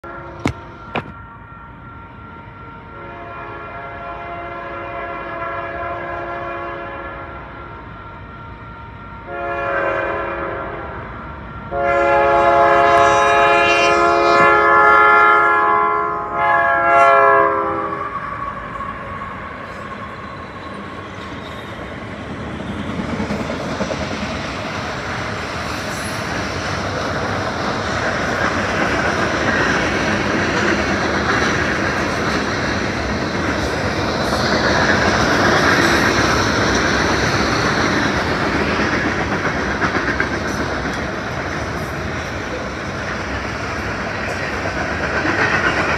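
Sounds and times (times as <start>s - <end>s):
train wheels on rail: 0.0s - 2.8s, 3.5s - 45.9s
train air horn blasts: 0.0s - 8.3s, 9.1s - 20.2s.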